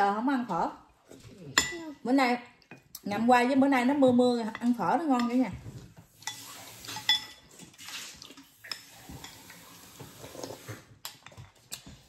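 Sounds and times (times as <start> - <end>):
utensils clinking on bowls: 6.1 - 9.8
kitchen tap running: 6.1 - 10.8.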